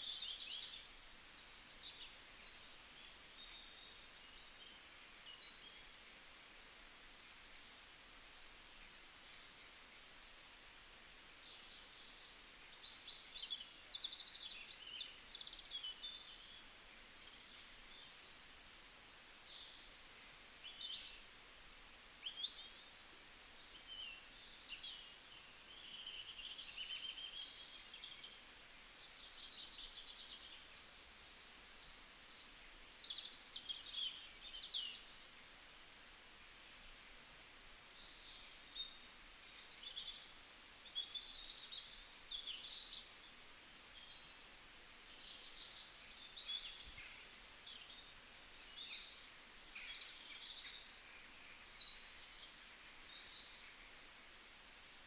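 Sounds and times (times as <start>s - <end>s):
faint steady hiss: 0.0s - 55.0s
wild birds chirping and whistling: 36.0s - 54.4s.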